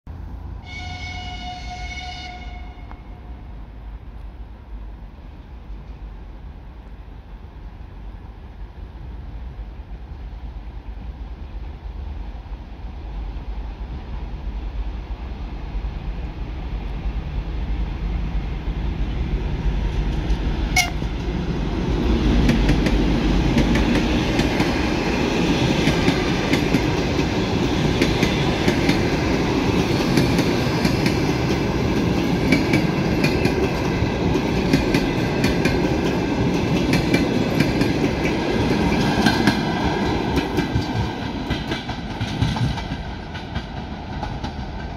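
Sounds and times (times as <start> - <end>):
train wheels clattering over rail joints: 25.7 - 44.9.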